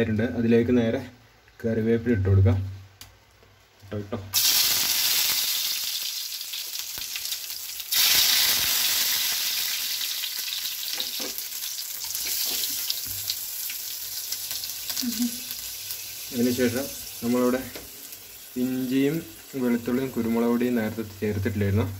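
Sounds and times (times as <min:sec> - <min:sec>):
hot oil sizzling in a frying pan: 0:04.3 - 0:21.9.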